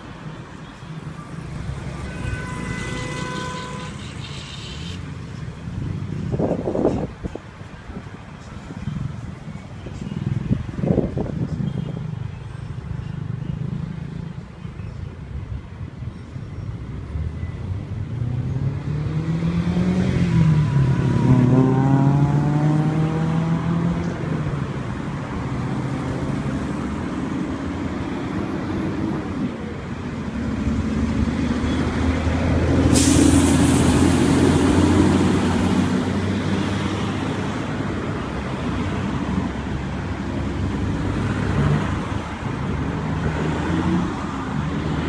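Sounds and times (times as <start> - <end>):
vehicles passing: 0.0 - 45.0
air brake hiss: 32.9 - 33.9.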